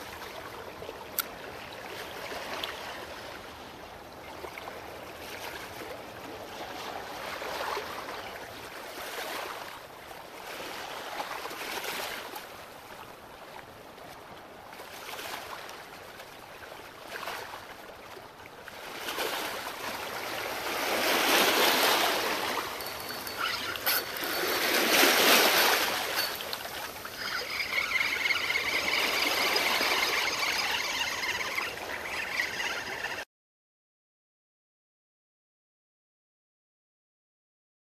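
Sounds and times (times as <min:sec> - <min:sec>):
waves washing against rocks: 0:18.8 - 0:31.8.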